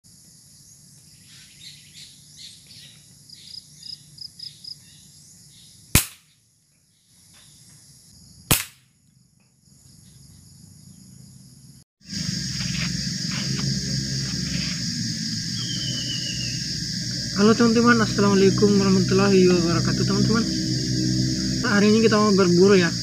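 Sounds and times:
small bird chirping: 0.5 - 8.4, 14.5 - 17.5
air rifle cracks: 6.0 - 6.3, 8.5 - 8.9.

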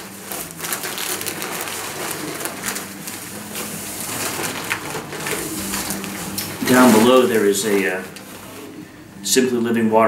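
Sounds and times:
packing paper rustling: 0.0 - 8.9.

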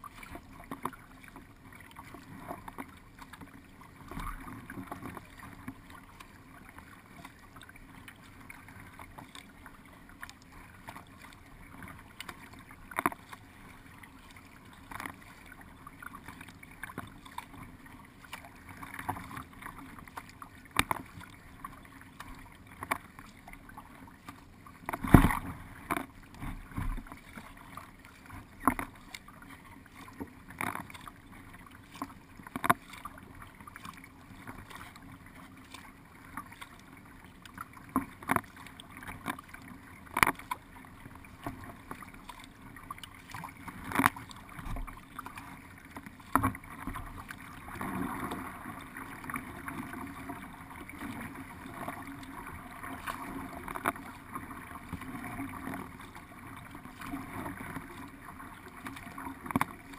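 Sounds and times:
paddle strokes knocking and splashing: 0.0 - 59.9.

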